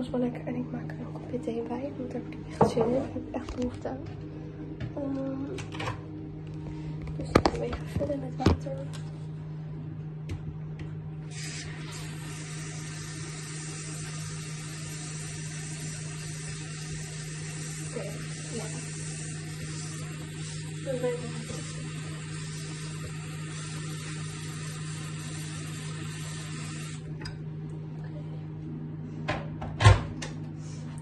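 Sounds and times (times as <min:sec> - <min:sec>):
steady low hum: 0:00.0 - 0:31.0
tap water running into kettle: 0:11.3 - 0:27.4.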